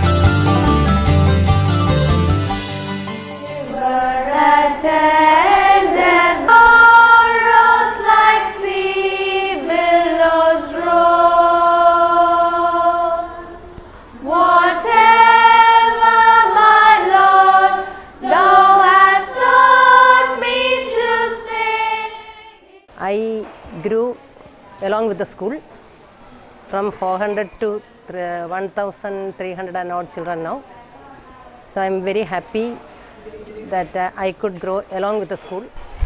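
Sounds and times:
girls singing together: 3.4s - 22.9s.

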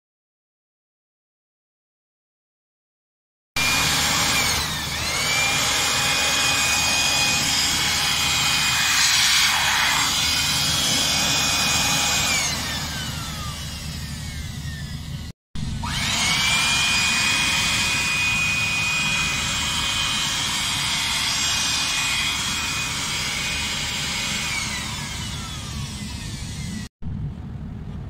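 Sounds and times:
electric air blower running: 3.6s - 26.9s.

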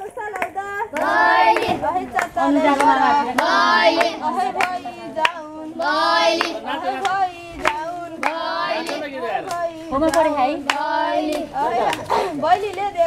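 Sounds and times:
hand claps: 0.2s - 12.9s
children singing in unison: 0.9s - 9.1s, 10.6s - 12.1s.

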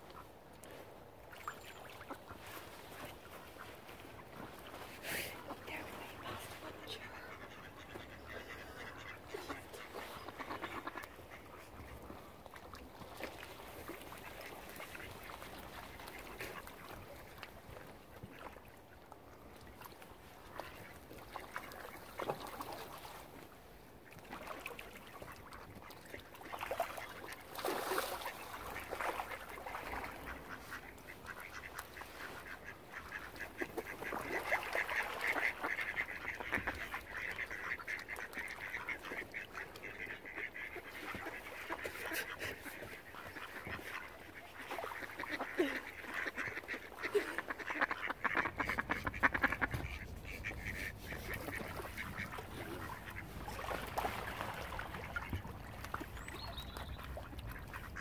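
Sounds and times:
ducks quacking: 1.4s - 12.6s, 25.1s - 58.0s.

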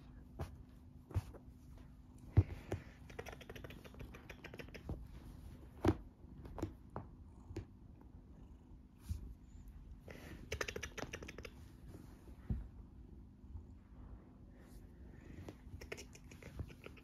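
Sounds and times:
cat purring: 1.2s - 5.6s, 6.2s - 12.2s, 15.1s - 17.0s.

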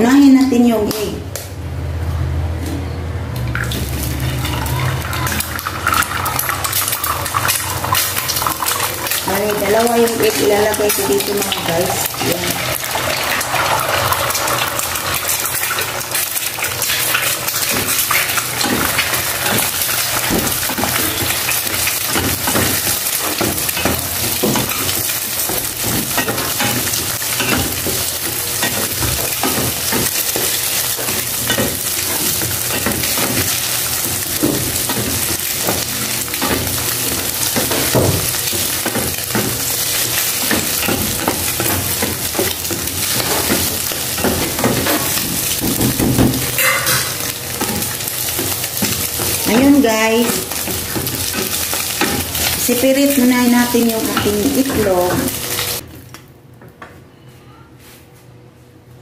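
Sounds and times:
eggs sizzling in oil: 3.5s - 55.8s.

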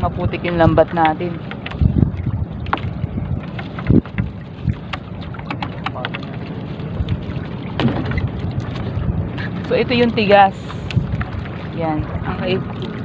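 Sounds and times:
steady low rumble: 0.0s - 13.0s
wind buffeting microphone: 0.0s - 13.0s
soft low thump: 7.8s - 8.4s.

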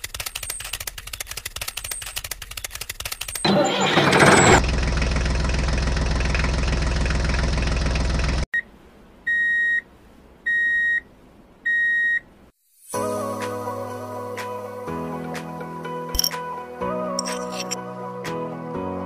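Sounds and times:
music: 12.9s - 19.0s.

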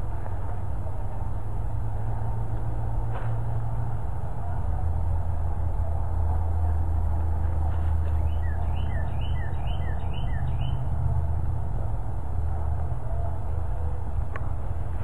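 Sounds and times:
small bird chirping: 8.2s - 10.8s.

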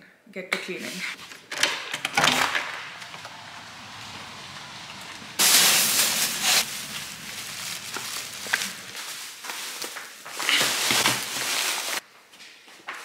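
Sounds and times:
plastic bags crinkling: 5.4s - 12.0s.

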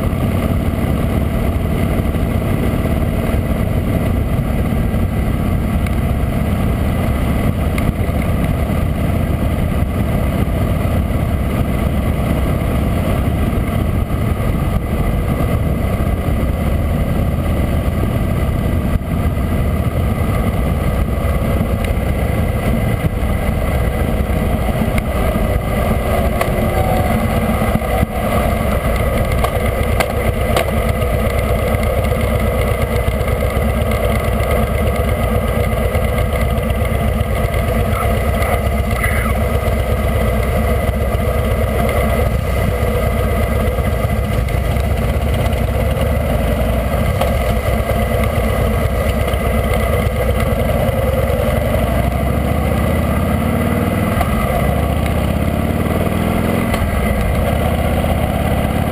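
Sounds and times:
motorcycle engine running: 0.0s - 58.9s.

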